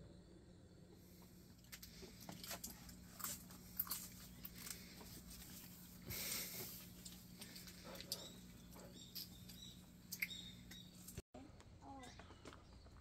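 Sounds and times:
crunchy snacks crunching: 0:01.7 - 0:05.5.

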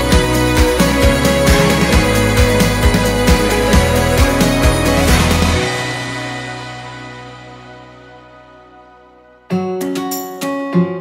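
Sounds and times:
steady drum beat: 0:00.0 - 0:06.9
sustained bass notes: 0:00.0 - 0:09.5.

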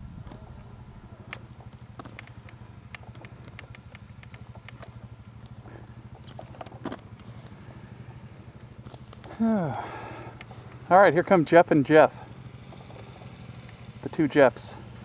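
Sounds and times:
motorcycle engine idling: 0:00.0 - 0:15.0
light clicks and ticks: 0:01.3 - 0:05.6.

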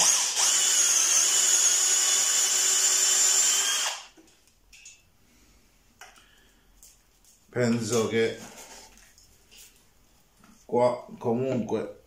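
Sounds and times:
cordless drill boring into wood: 0:00.0 - 0:04.2.

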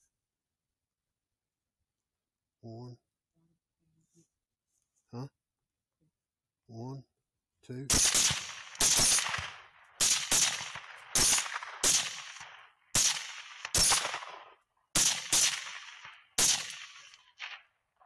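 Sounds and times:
rifle shots cracking: 0:07.9 - 0:17.7.

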